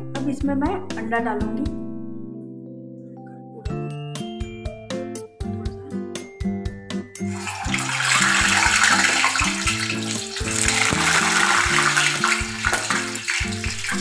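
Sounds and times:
eggs sizzling in hot oil: 7.2s - 14.0s.

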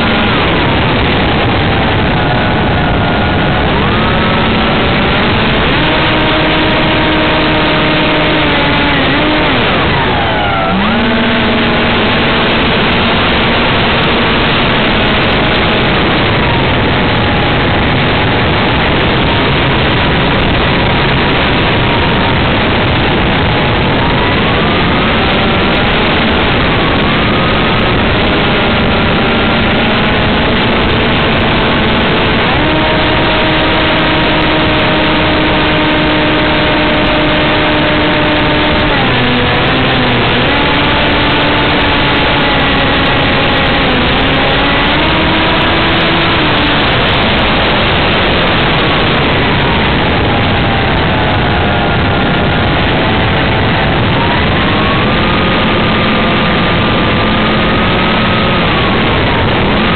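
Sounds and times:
wind rush: 0.0s - 59.9s.

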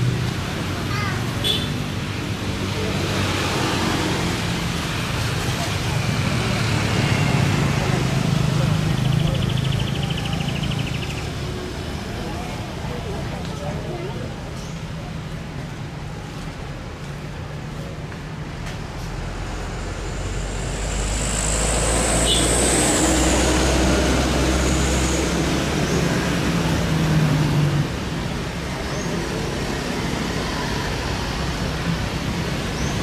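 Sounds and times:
jet engines rumbling and whining: 18.5s - 26.9s.

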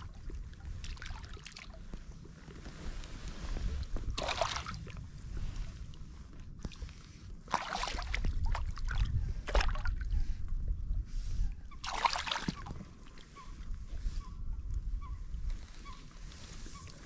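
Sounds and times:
wind rumble on microphone: 0.0s - 17.0s
water splashing: 4.1s - 5.0s, 7.5s - 9.9s, 11.8s - 12.8s.

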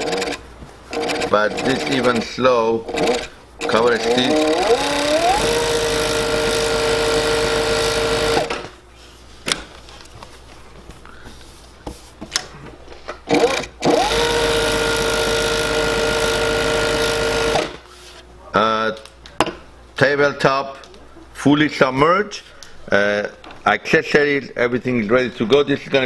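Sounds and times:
sewing machine clicks: 0.0s - 2.2s, 2.9s - 6.1s
sewing machine stitching: 0.0s - 2.3s, 2.9s - 8.7s, 13.3s - 17.8s.

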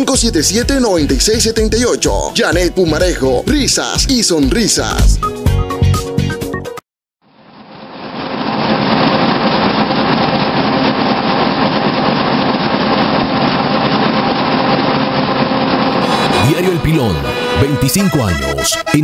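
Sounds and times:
printing press running: 8.8s - 16.8s.

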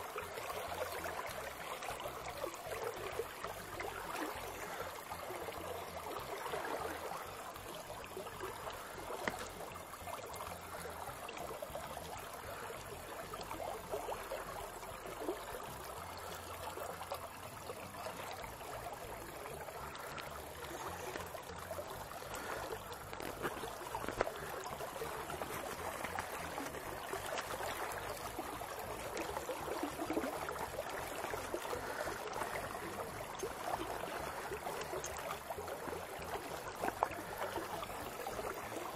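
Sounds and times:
river flowing and rippling: 0.0s - 38.9s
faint clicks: 9.0s - 9.6s.

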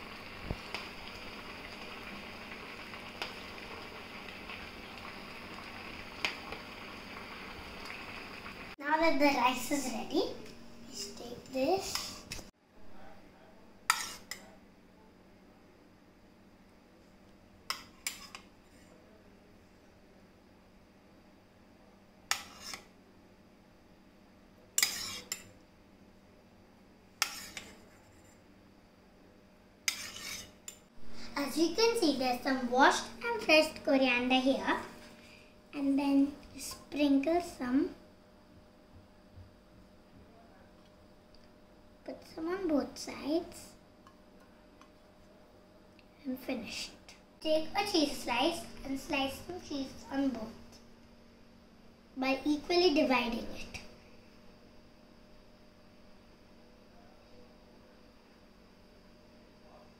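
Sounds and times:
steady low hiss: 0.0s - 59.9s
metal spoon scraping saucepan: 13.9s - 14.4s, 22.3s - 22.8s, 24.8s - 25.5s, 27.2s - 28.4s, 29.9s - 30.6s.

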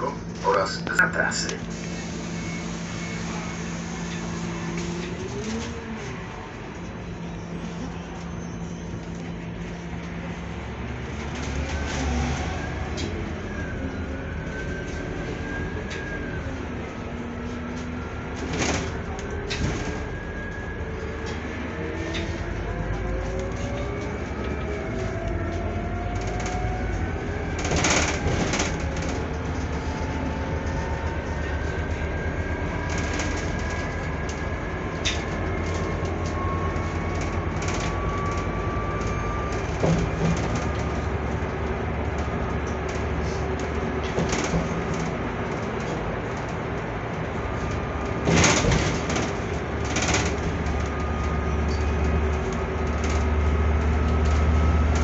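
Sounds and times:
bus engine and road rumble: 0.0s - 55.0s
rattling knocks from bus body: 44.0s - 45.1s.

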